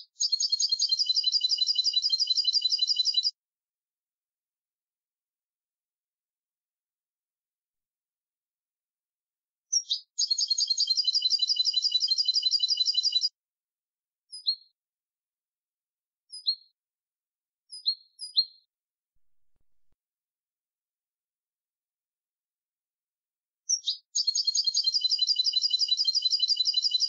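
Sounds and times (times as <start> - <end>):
goldfinch singing: 0.2 - 3.3, 9.8 - 13.3, 23.7 - 27.0.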